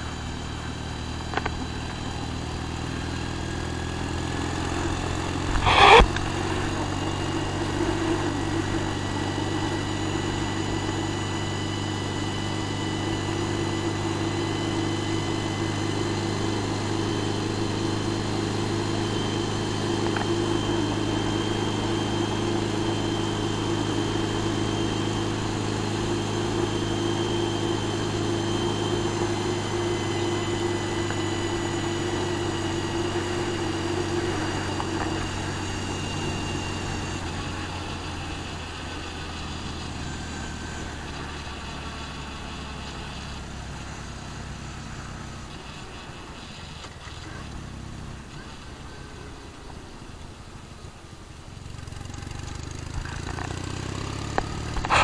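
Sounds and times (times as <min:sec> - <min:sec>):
wind and road noise: 0:00.0 - 0:10.1, 0:42.4 - 0:55.0
motorcycle engine drone: 0:00.0 - 0:55.0
thin steady whine: 0:00.0 - 0:55.0.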